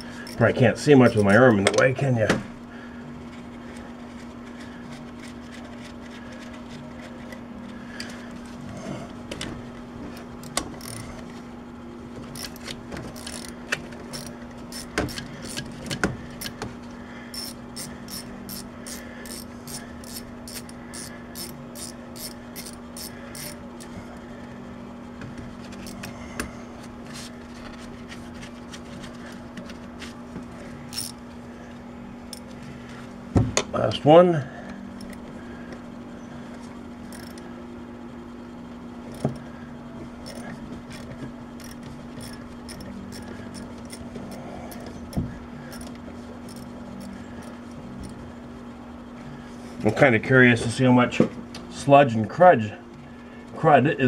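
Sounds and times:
ratchet clicking: 10.4 - 11.0, 12.4 - 15.7, 17.3 - 23.9, 30.9 - 31.2, 37.1 - 37.4, 46.5 - 48.2.

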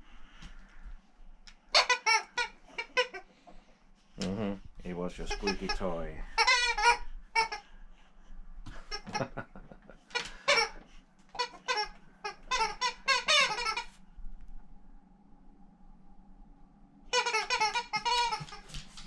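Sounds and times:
squeaky dog toy squeaking: 1.7 - 3.2, 5.3 - 7.6, 10.1 - 14.0, 17.1 - 18.8.

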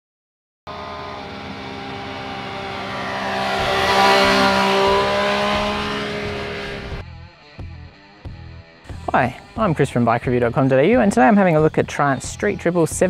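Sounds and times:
vehicle engine passing by: 0.7 - 7.0.

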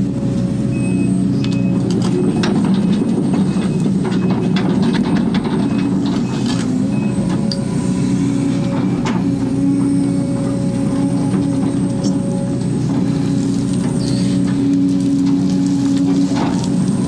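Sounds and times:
diesel engine running: 0.0 - 17.0
clatter of clicks and knocks: 1.4 - 6.7.

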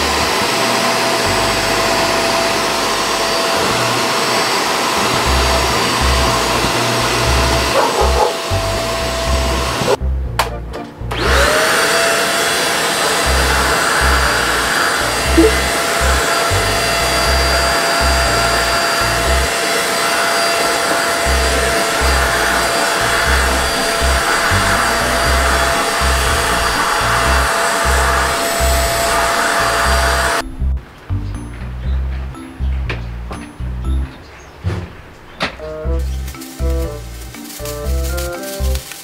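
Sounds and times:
vacuum cleaner motor whine: 0.0 - 10.0, 11.1 - 30.4
background music with a beat: 35.7 - 39.0.

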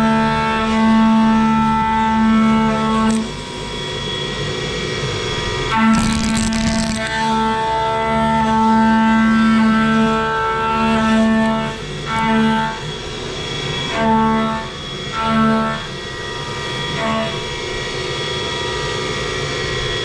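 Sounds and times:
milling cutter singing hum: 0.0 - 17.6.

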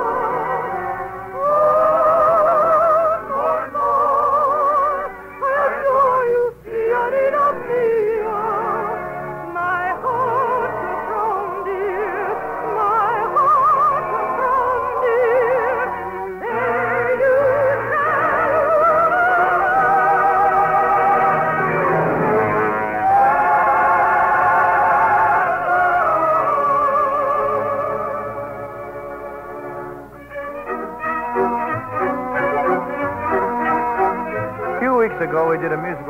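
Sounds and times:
soprano singing operatically: 0.0 - 29.4
orchestra playing: 13.8 - 36.0.

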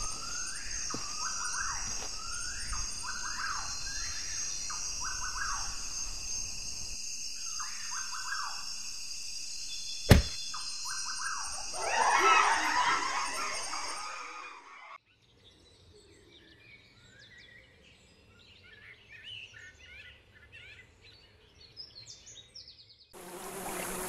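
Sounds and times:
sharp loud impact: 10.1 - 10.4
harsh noisy outburst: 11.7 - 14.8.

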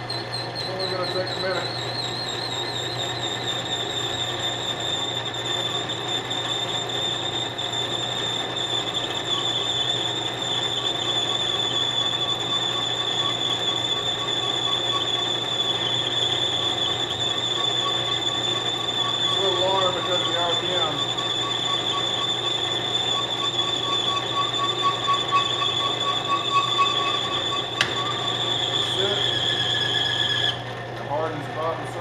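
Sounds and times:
lathe running: 0.0 - 32.0
high-pitched cutting tone: 19.3 - 30.5.

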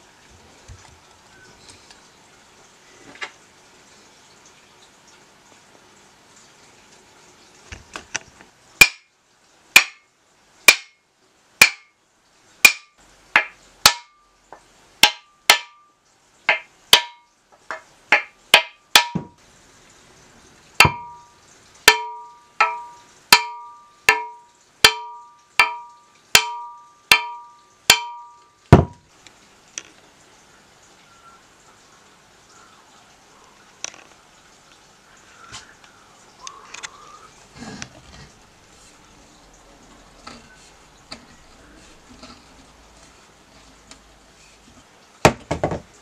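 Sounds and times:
hammer knocking on metal head: 16.5 - 19.4, 20.8 - 21.3, 21.9 - 29.0.

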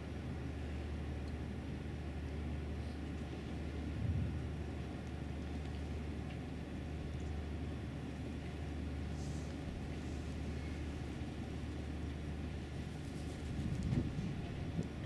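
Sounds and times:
steady low rumble with hiss: 0.0 - 15.0
faint rustle: 12.8 - 14.5.

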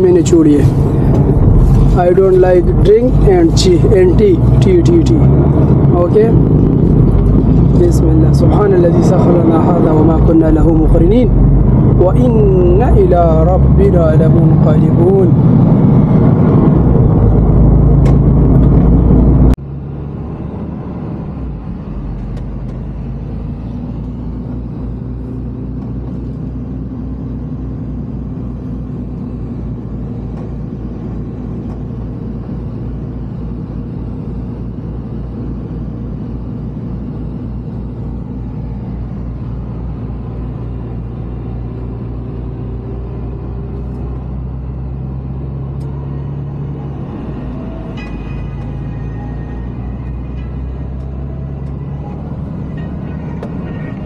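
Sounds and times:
truck engine drone from cab: 0.0 - 54.0.

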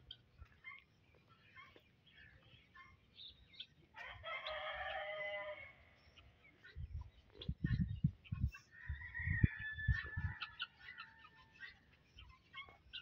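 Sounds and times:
faint bird chirps: 0.0 - 13.0
rooster crowing: 4.0 - 5.7.

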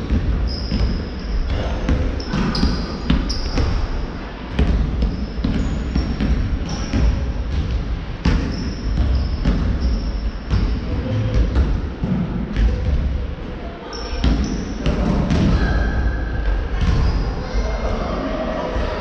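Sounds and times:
sneakers squeaking on floor: 0.0 - 4.0, 4.6 - 11.6, 13.8 - 15.8.

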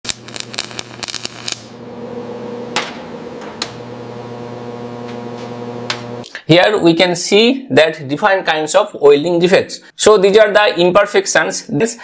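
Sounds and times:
welding arc crackling and popping: 0.0 - 6.3
low electrical hum: 0.1 - 6.3.

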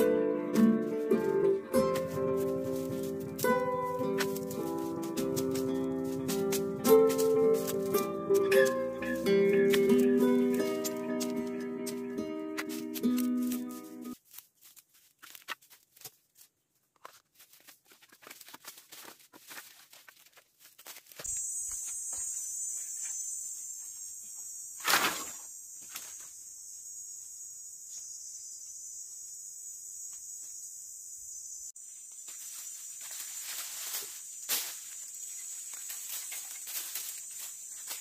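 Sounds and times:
high drone of insects: 1.2 - 13.8, 21.2 - 38.0
dry twigs and leaves crackling: 1.2 - 21.5, 32.0 - 38.0
firewood sticks dropped on ground: 1.8 - 11.4, 24.8 - 26.0.

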